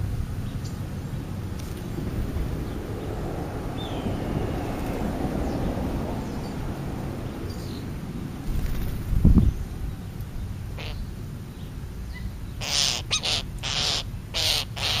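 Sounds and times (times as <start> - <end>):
low outdoor rumble: 0.0 - 15.0
high bird calls: 10.7 - 15.0.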